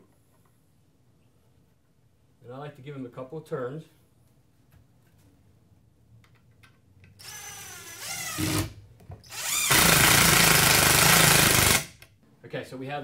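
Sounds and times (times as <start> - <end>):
cordless drill whirring: 7.2 - 12.0.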